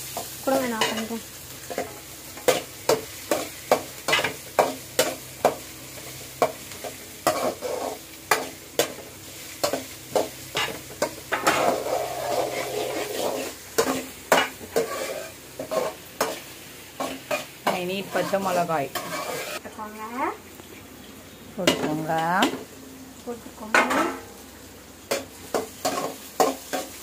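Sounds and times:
light sizzle: 0.0 - 27.0
metal ladle scraping a pan: 7.2 - 9.0, 10.5 - 16.4, 17.0 - 19.6.

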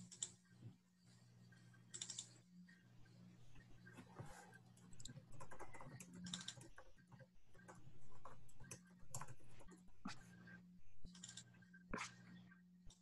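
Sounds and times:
typing on computer keyboard: 1.9 - 2.3, 5.0 - 6.9, 7.6 - 9.4.

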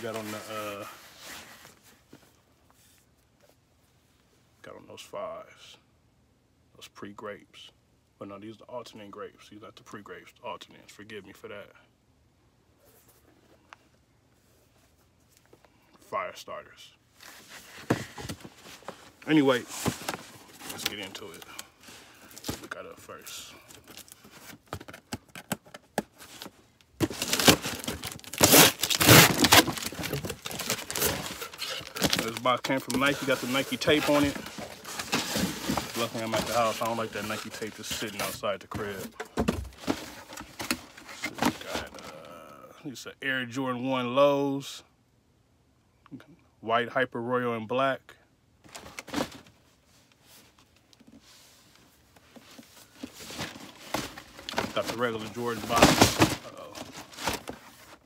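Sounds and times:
cardboard scraping: 17.2 - 22.8, 23.8 - 42.1, 52.3 - 58.0
cardboard box rustling: 17.2 - 23.1, 23.7 - 42.1, 48.7 - 49.6, 52.2 - 58.0
packing tape ripping off cardboard: 26.3 - 37.0.

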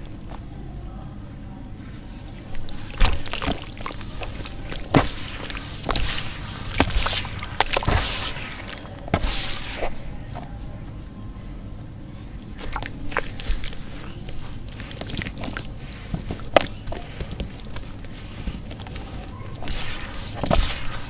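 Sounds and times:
hands splashing and sloshing water: 2.4 - 10.3, 12.4 - 19.0.

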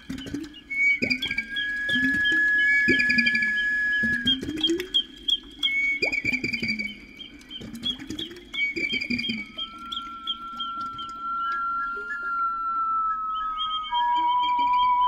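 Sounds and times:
held whistle-like tones: 0.0 - 15.0
bird-like chirps and trills: 4.3 - 12.3, 13.2 - 15.0.

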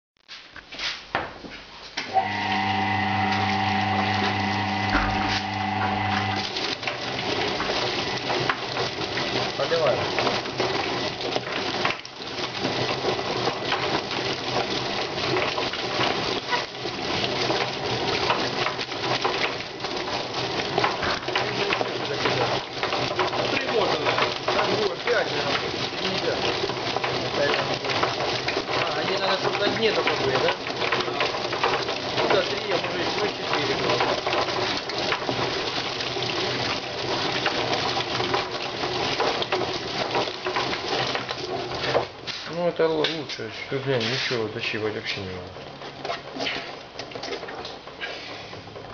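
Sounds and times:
low motor hum: 2.1 - 6.9
water spraying: 2.1 - 40.0
chicken carcasses slapping in drum: 6.6 - 44.5.

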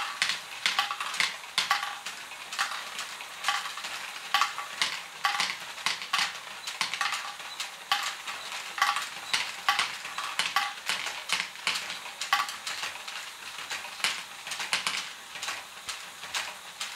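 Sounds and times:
plastic balls clattering through mechanism: 0.0 - 16.9.

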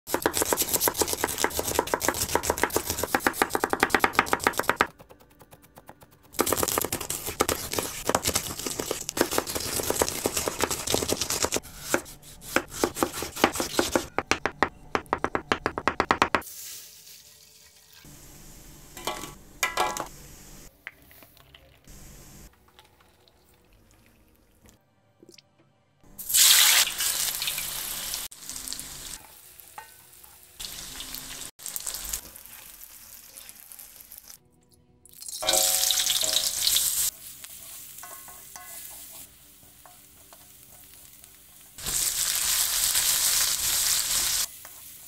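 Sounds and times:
knife chopping on wooden board: 0.1 - 16.4.

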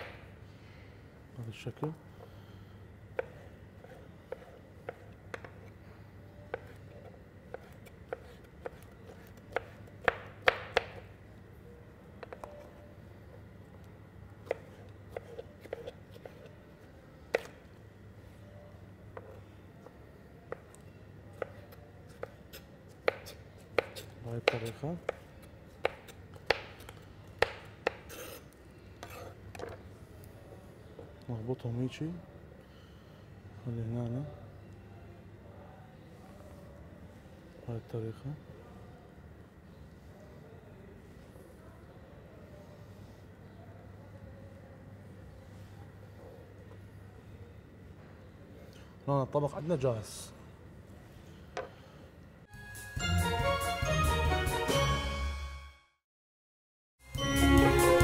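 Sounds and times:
knife chopping on cutting board: 3.2 - 5.7, 7.5 - 11.1, 14.4 - 16.5, 21.4 - 28.4
knife scraping on board: 14.5 - 16.6, 27.8 - 29.8.

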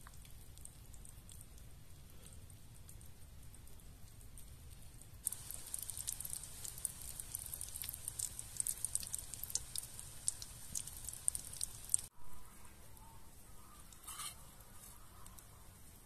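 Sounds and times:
cutlets sizzling in hot oil: 5.2 - 12.1.

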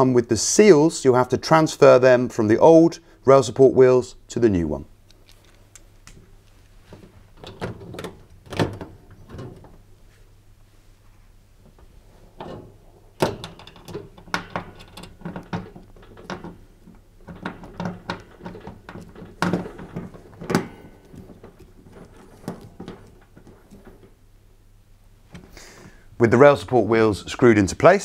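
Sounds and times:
screwdriver metallic clicks and knocks: 13.2 - 24.1.

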